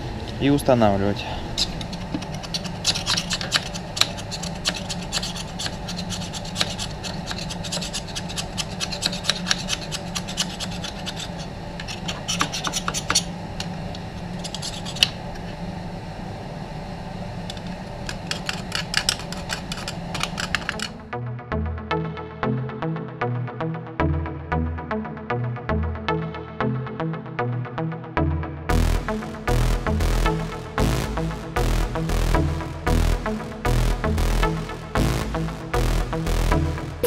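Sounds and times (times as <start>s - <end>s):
steady low hum: 0.0s - 37.0s
tools scraping and clicking on metal: 1.6s - 13.3s, 14.2s - 15.2s, 17.5s - 21.0s.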